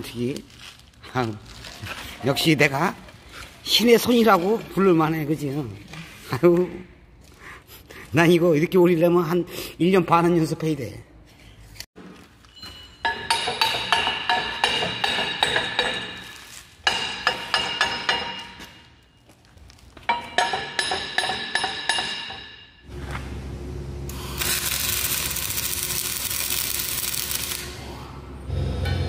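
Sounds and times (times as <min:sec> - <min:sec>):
arc welding crackling hiss: 0:24.1 - 0:27.8.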